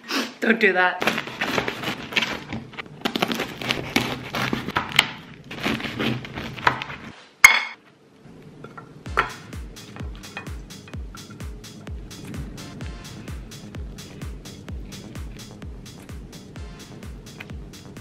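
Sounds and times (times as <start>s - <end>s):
bread knife sawing crusty loaf: 1.0s - 7.1s.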